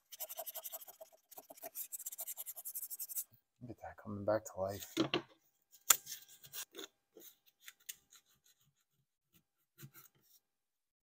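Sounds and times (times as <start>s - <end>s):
sandpaper rubbing on wood: 0.0s - 3.2s.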